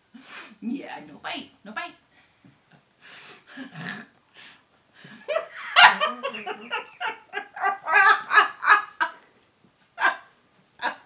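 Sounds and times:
woman laughing: 5.2s - 9.2s.

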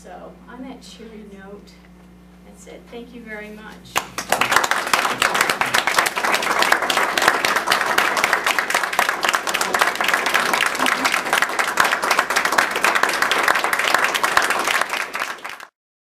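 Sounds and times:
audience applauding: 3.9s - 15.8s.

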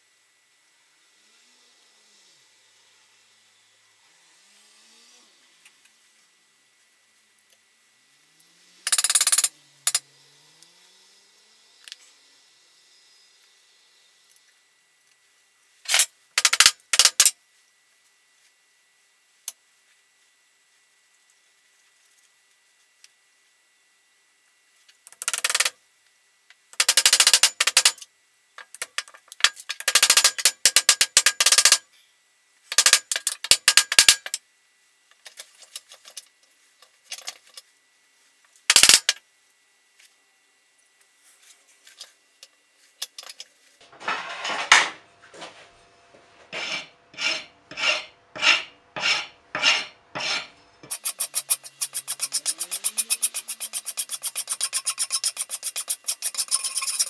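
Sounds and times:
file rasping on wood: 46.5s - 57.0s.

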